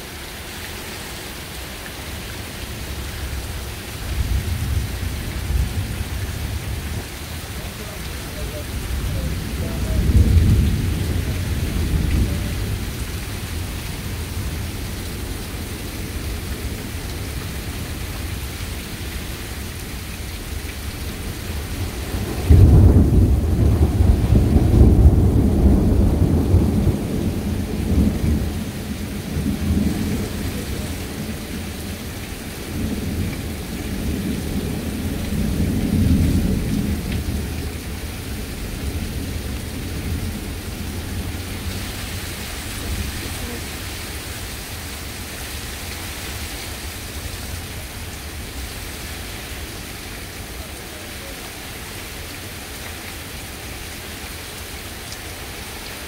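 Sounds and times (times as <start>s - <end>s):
heavy rain: 0.0s - 56.0s
thunder rumbling: 2.9s - 19.3s, 20.4s - 45.1s.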